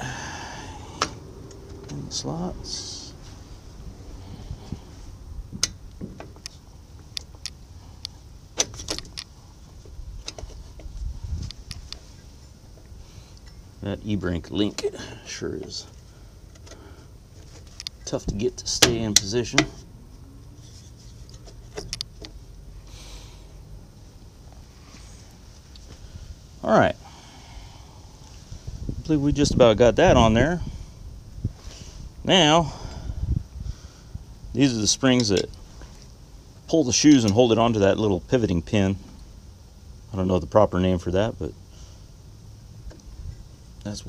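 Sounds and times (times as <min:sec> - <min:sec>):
low outdoor rumble: 0:00.0 - 0:44.0
soft rustle: 0:03.1 - 0:05.2, 0:20.4 - 0:22.5
metal brake parts clicking: 0:35.1 - 0:35.6.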